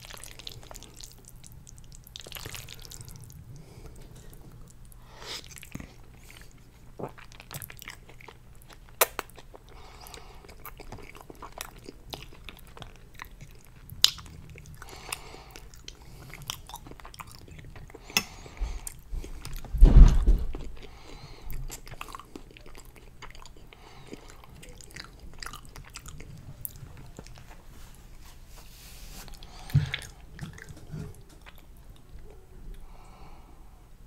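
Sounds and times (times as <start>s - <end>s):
chewing pasta: 0.0s - 19.7s, 20.5s - 28.3s, 29.1s - 33.1s
low thud: 19.7s - 20.6s.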